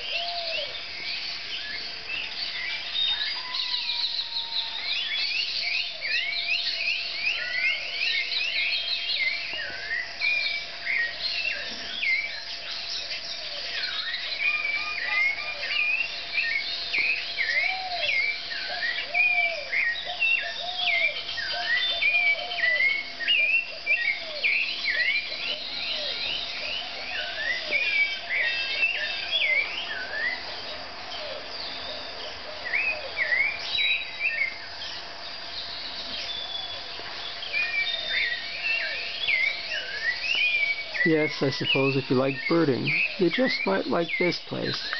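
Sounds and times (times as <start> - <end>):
lower repeated arched bird notes: 0.0 - 44.9.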